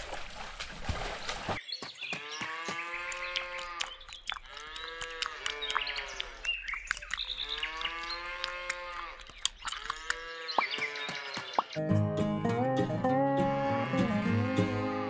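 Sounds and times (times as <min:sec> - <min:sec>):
cows mooing: 0:02.2 - 0:06.4, 0:07.4 - 0:09.2, 0:09.8 - 0:11.4, 0:12.4 - 0:15.0.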